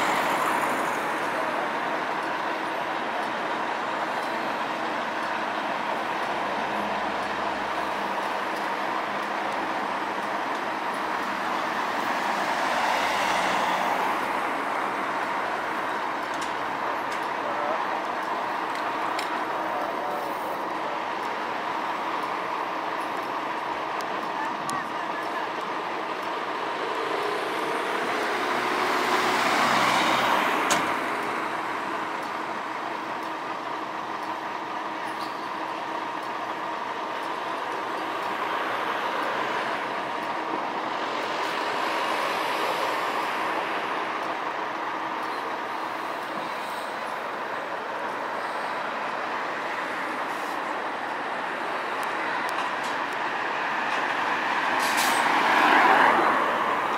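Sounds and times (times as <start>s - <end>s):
bus machinery hum: 0.0s - 56.9s
road traffic: 0.0s - 56.9s.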